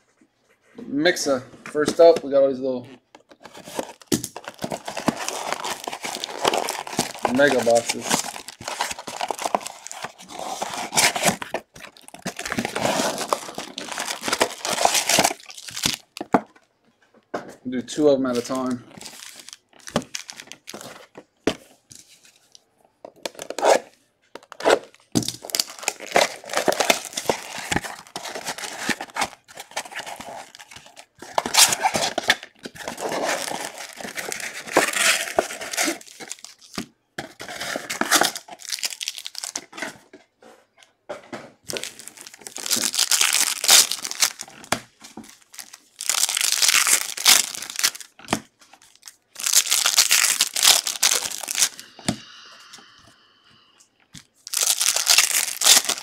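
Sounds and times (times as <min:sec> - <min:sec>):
foil wrappers tearing and crinkling: 0:03.4 - 0:16.3, 0:18.9 - 0:20.9, 0:24.5 - 0:39.7, 0:41.7 - 0:51.9, 0:54.4 - 0:56.0.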